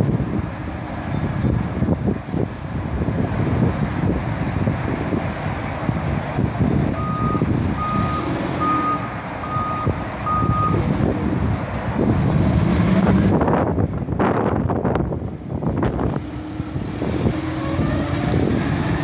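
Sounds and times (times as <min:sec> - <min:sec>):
forklift backup alarm beeping: 0:07.0 - 0:10.8.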